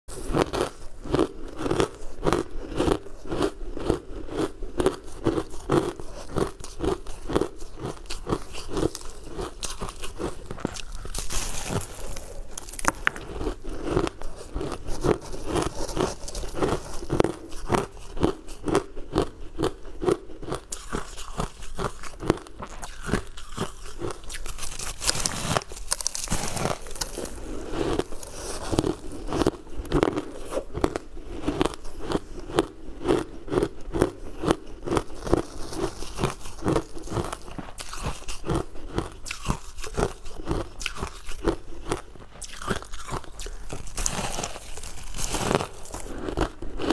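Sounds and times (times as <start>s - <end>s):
chewing crunchy ice: 0.1s - 46.9s.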